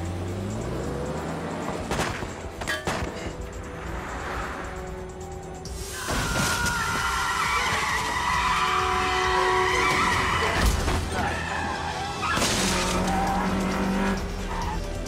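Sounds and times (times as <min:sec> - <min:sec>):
film score music: 0:00.0 - 0:15.0
car crash: 0:01.8 - 0:03.4, 0:05.9 - 0:08.5, 0:09.6 - 0:11.3, 0:12.2 - 0:13.2
car tyres screeching: 0:05.7 - 0:15.0.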